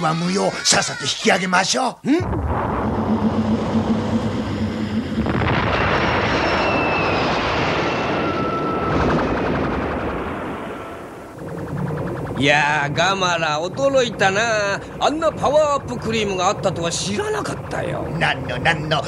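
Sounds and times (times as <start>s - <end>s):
low pulsing hum: 2.2s - 19.0s
rocket exhaust rumble and rush: 2.2s - 19.0s
faint high whistling tones: 6.0s - 9.4s.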